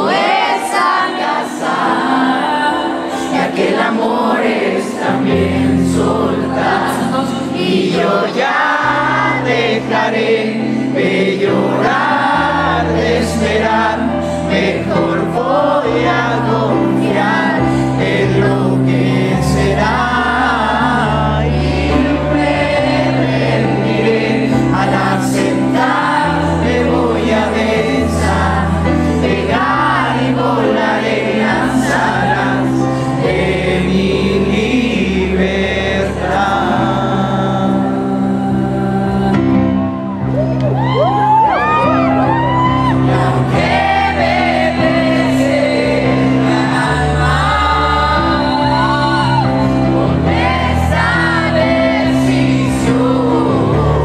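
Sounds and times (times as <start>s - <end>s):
man singing a pop ballad: 33.5s - 40.0s.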